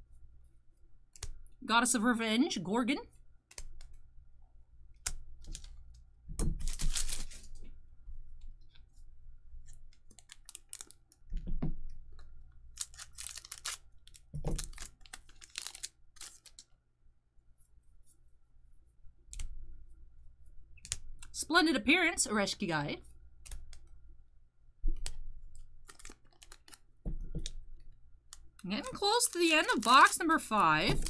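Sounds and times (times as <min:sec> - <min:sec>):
trading cards rustling and slapping: 0:05.0 - 0:07.6, 0:12.7 - 0:16.7, 0:24.9 - 0:31.0.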